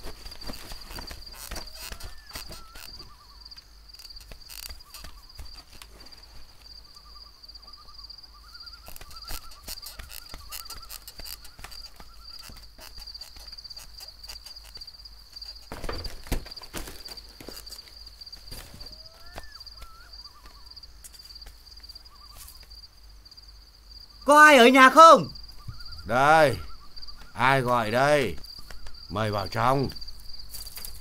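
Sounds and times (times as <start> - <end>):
insects trilling: 0.0 - 31.0
owl hooting: 1.4 - 3.5, 6.9 - 13.9, 18.6 - 20.8, 22.0 - 22.6, 24.0 - 29.0.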